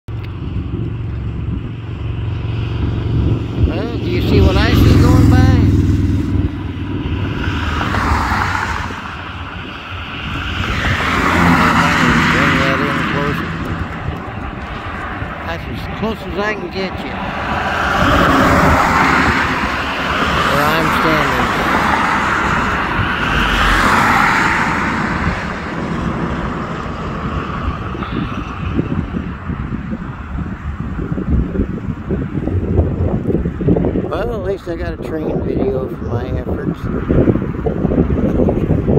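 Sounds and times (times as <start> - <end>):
vehicle passing by: 0.4 - 34.1.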